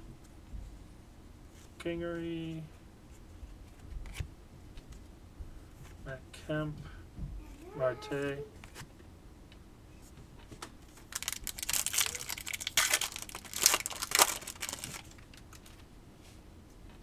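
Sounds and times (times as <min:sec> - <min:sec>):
wrapper crinkling and tearing: 0:10.9 - 0:15.8.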